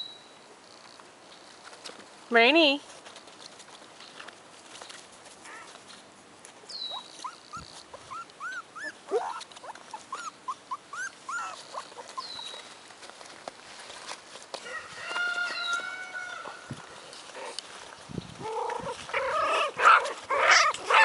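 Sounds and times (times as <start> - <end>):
puppies squeaking and whimpering: 6.8 - 12.8, 18.4 - 21.0.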